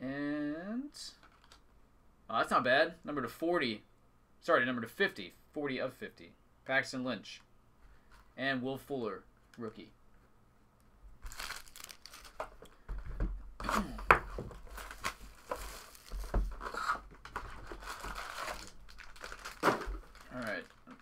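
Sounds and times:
cardboard box tearing and crinkling: 0:11.3 - 0:12.4, 0:14.6 - 0:20.7.

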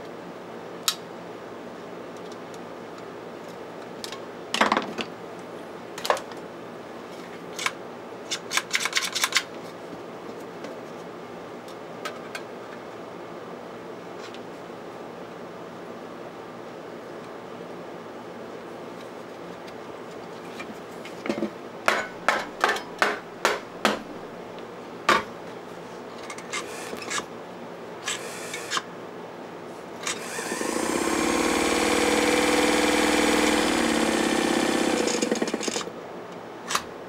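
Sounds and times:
sewing machine motor humming: 0:30.0 - 0:35.9.

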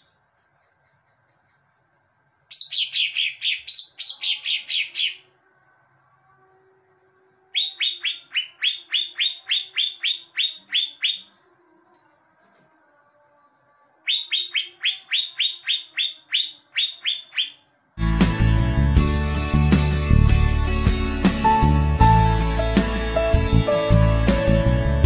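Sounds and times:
bird chirping rapidly: 0:02.5 - 0:05.3, 0:07.6 - 0:11.3, 0:14.1 - 0:17.6.

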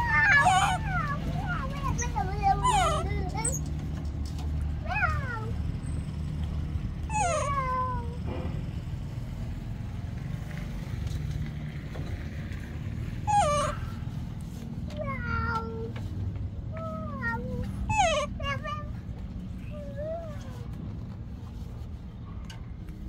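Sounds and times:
baby monkey squeaky calls: 0:00.0 - 0:03.7, 0:07.1 - 0:07.7, 0:13.2 - 0:14.1, 0:17.8 - 0:18.4.

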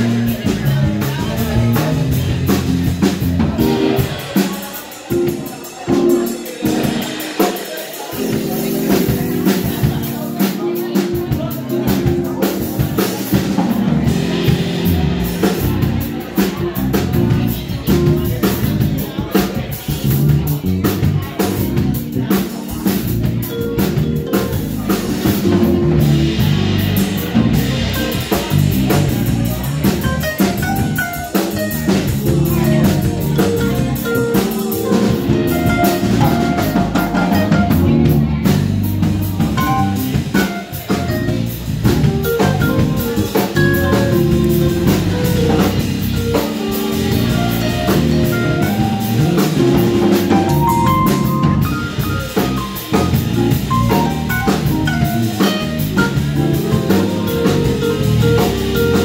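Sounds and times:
electric bass: 0:00.0 - 0:04.3, 0:08.2 - 0:59.0
drum kit beat: 0:00.0 - 0:59.0
keyboard: 0:00.0 - 0:59.0.

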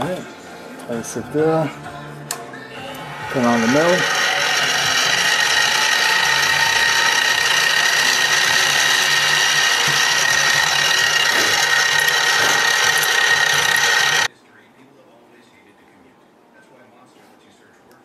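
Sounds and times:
milling machine whining: 0:02.6 - 0:14.3.

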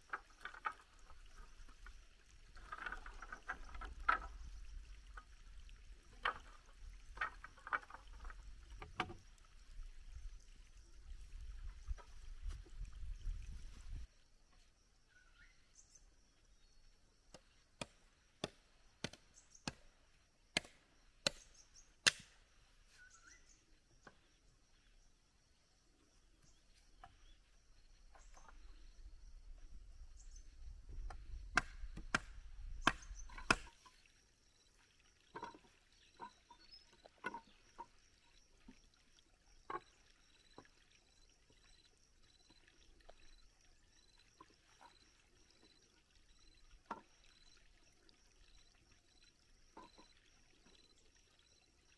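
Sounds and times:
machete chopping bamboo: 0:20.6 - 0:22.4, 0:31.5 - 0:33.8.

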